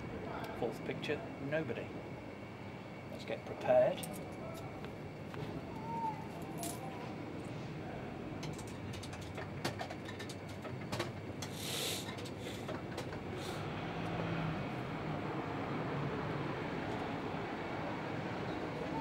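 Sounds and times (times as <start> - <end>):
distant traffic: 0.0 - 19.0
short hiss: 11.5 - 12.6.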